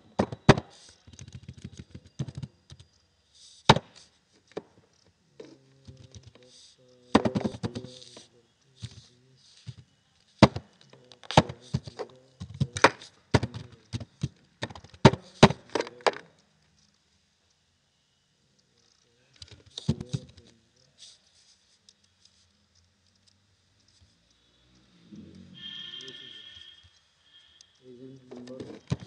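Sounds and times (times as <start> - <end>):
keyboard typing: 0.0 - 3.0, 18.8 - 20.6.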